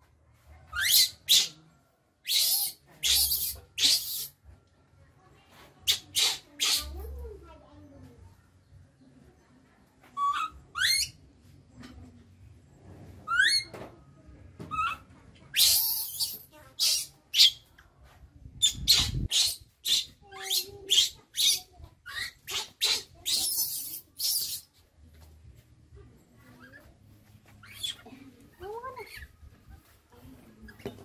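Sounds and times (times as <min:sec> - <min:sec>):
baby monkey squealing and screaming: 0:00.7 - 0:01.6, 0:02.2 - 0:04.4, 0:05.9 - 0:07.0, 0:10.2 - 0:11.2, 0:13.3 - 0:13.7, 0:14.7 - 0:17.6, 0:18.6 - 0:24.7, 0:27.6 - 0:28.1, 0:29.0 - 0:29.3.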